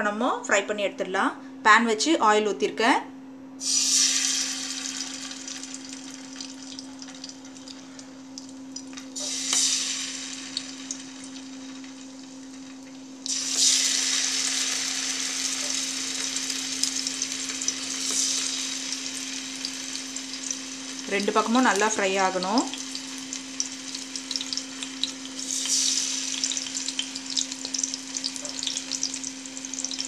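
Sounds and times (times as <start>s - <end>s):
food sizzling in hot oil: 3.6s - 30.0s.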